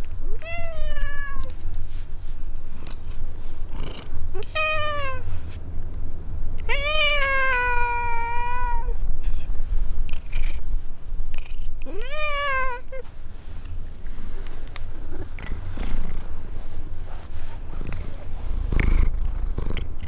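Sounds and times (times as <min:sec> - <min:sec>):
cat meowing: 0:00.3 - 0:01.5, 0:04.4 - 0:05.2, 0:06.6 - 0:09.0, 0:11.8 - 0:13.0.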